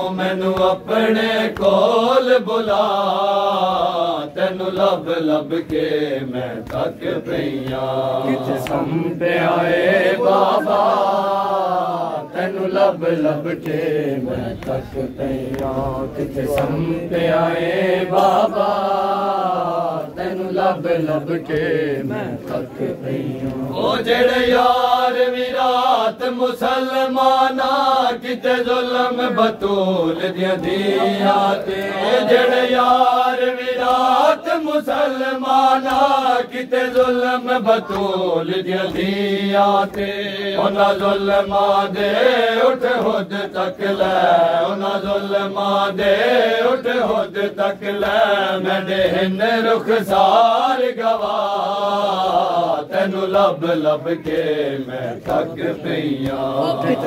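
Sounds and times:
men chanting in unison: 0:00.0 - 0:57.0.

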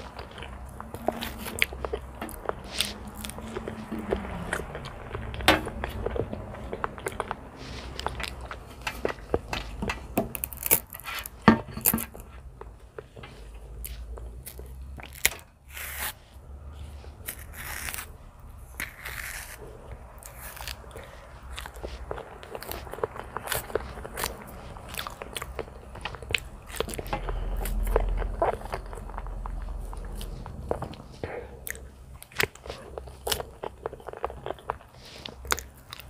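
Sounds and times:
chewing: 0:00.0 - 0:36.0
banana peel tearing: 0:10.3 - 0:12.2, 0:13.8 - 0:16.2, 0:17.2 - 0:25.3.

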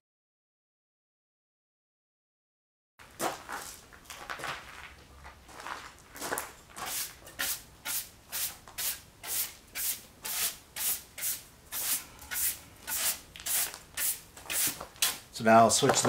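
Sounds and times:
hand brush sweeping sawdust: 0:06.8 - 0:15.2.

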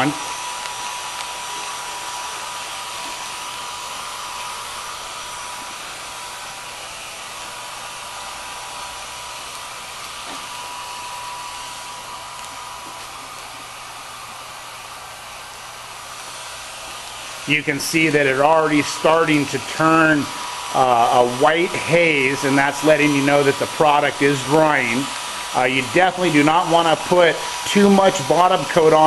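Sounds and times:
fan whine: 0:00.0 - 0:29.0
heat gun blowing: 0:00.0 - 0:29.0.

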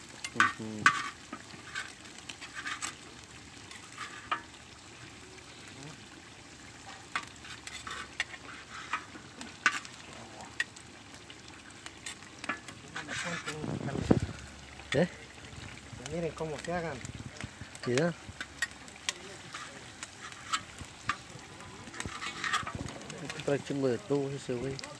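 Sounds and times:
tripe sizzling in a pan: 0:00.0 - 0:24.9
spatula scraping a pan: 0:00.1 - 0:04.6, 0:06.8 - 0:10.8, 0:11.5 - 0:14.2, 0:16.6 - 0:23.4.

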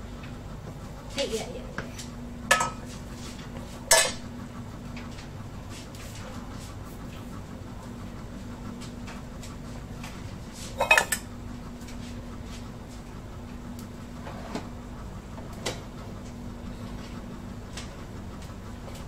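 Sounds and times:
steady low hum: 0:00.0 - 0:19.0
metal pots clanking: 0:02.5 - 0:02.8, 0:10.8 - 0:11.3.

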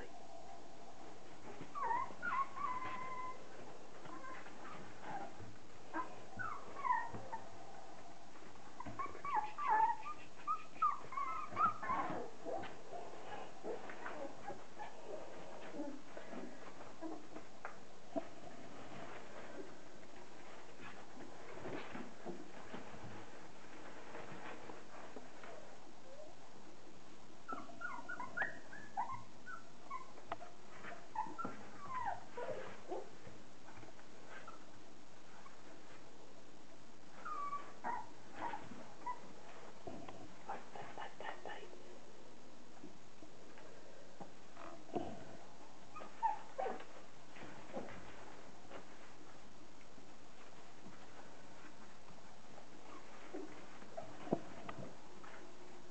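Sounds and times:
puppies whining: 0:01.4 - 0:07.6, 0:08.8 - 0:12.6, 0:27.5 - 0:33.1, 0:37.2 - 0:39.3, 0:45.9 - 0:47.0.

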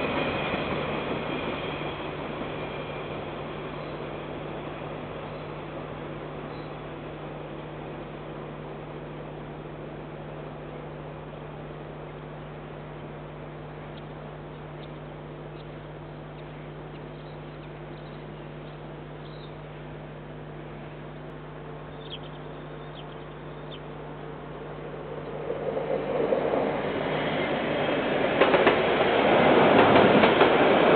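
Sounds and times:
low hum: 0:00.0 - 0:30.9
high bird chirps: 0:21.9 - 0:23.9.

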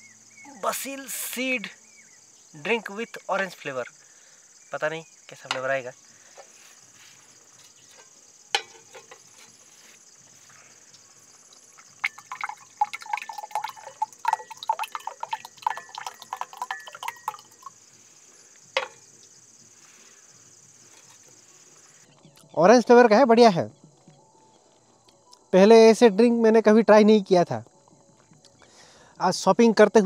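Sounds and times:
drink glugging from bottle: 0:11.5 - 0:17.8.

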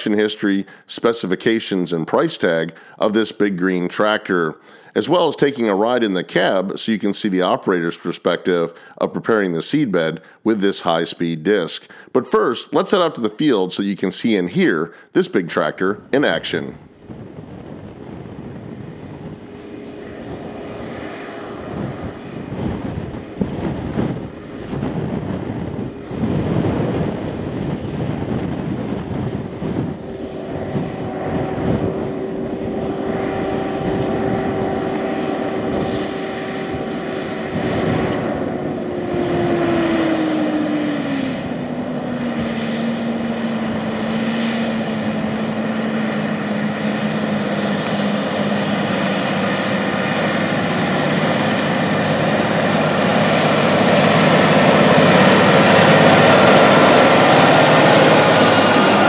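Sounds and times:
engine whine: 0:00.0 - 0:12.1, 0:12.7 - 0:59.0
tractor engine running under load: 0:28.6 - 0:59.0.

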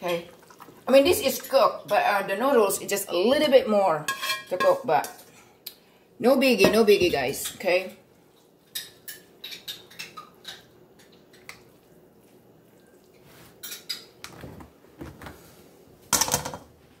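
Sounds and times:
kitchenware clinking: 0:04.1 - 0:05.3, 0:08.6 - 0:11.6, 0:13.6 - 0:14.3, 0:16.1 - 0:16.7.

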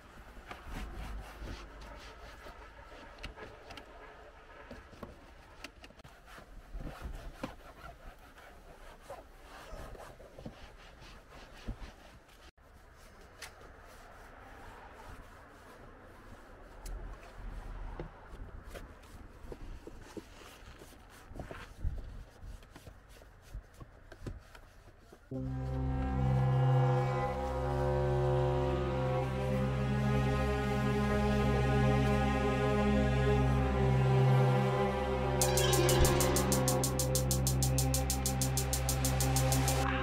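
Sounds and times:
cloth rubbing on plastic trim: 0:06.0 - 0:12.5.

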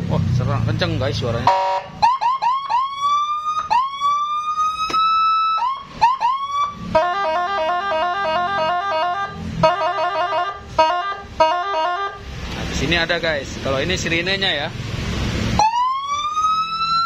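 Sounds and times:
electronic siren whoops and warble: 0:01.5 - 0:12.2, 0:15.6 - 0:17.0.

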